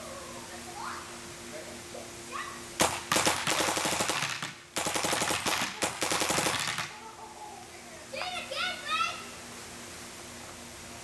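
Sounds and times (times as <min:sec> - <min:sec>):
paintball marker firing: 0:02.8 - 0:06.9.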